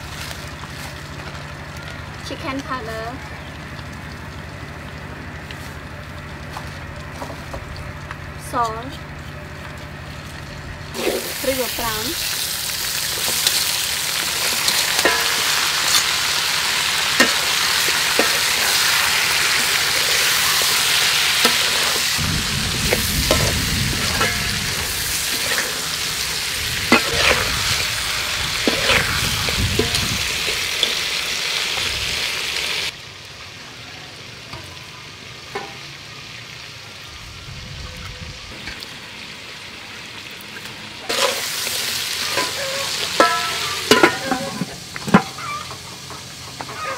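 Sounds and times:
oil sizzling in a wok: 0.0s - 46.9s
spatula scraping a pan: 17.1s - 22.2s, 23.3s - 31.0s, 42.2s - 46.9s.

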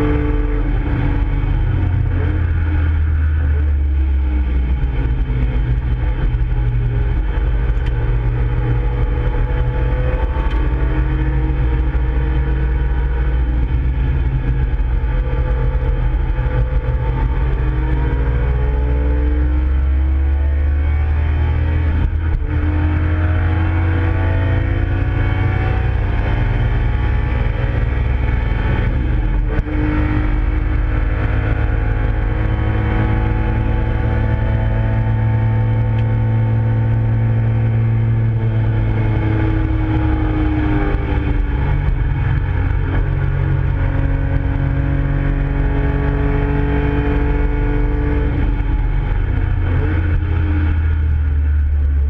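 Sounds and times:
car engine accelerating hard: 0.0s - 52.0s.

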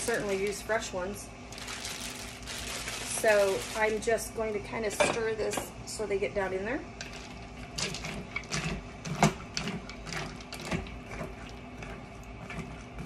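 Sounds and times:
frozen berries clattering in a pot: 0.0s - 5.1s.

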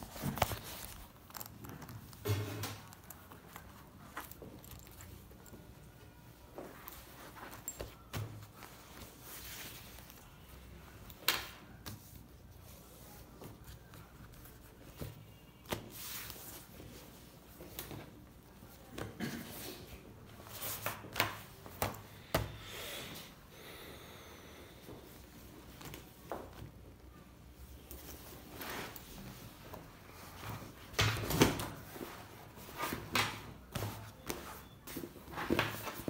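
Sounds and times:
leather rustling and rubbing: 0.0s - 2.2s.

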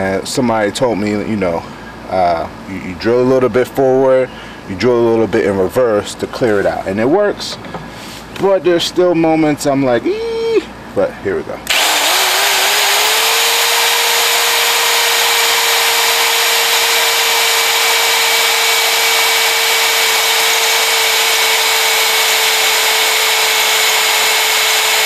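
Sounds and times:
drill bit grinding metal: 11.7s - 25.0s
electric drill motor whine: 11.7s - 25.0s.

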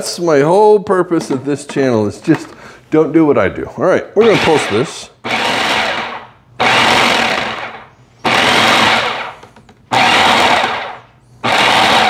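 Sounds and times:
food processor pulsing: 4.2s - 12.0s.

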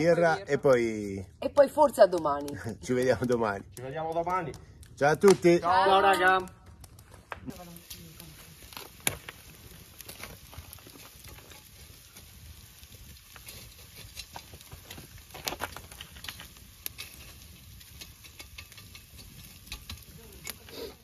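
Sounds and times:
meat sizzling on grill: 0.0s - 1.2s, 7.5s - 21.0s
wood fire crackling and popping: 0.0s - 21.0s.

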